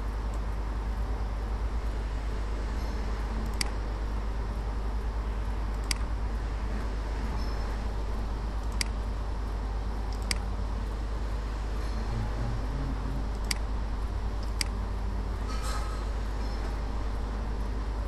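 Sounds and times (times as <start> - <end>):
computer mouse clicks: 3.4 - 3.8, 5.7 - 6.1, 8.6 - 9.0, 10.1 - 10.5, 13.3 - 13.7, 14.4 - 14.8
microphone hum and hiss: 10.4 - 15.0.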